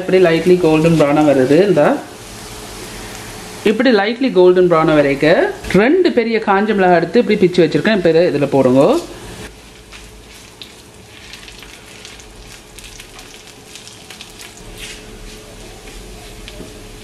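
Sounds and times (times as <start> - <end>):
spices sizzling in oil: 0.0 - 3.7, 8.5 - 15.4
spatula stirring: 8.9 - 16.1.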